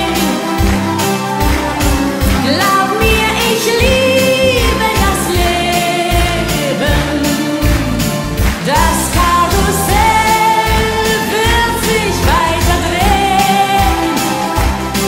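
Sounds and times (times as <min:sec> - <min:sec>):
woman singing pop song: 0:00.0 - 0:00.9, 0:02.2 - 0:15.0
band playing steady beat: 0:00.0 - 0:15.0.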